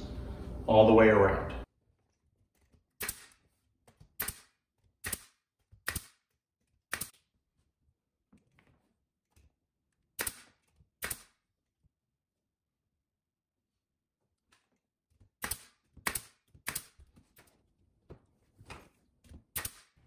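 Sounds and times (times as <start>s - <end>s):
nail gun firing: 3.0s - 3.4s, 4.2s - 6.3s, 6.9s - 7.2s, 10.2s - 11.4s, 15.4s - 17.0s, 19.5s - 20.0s.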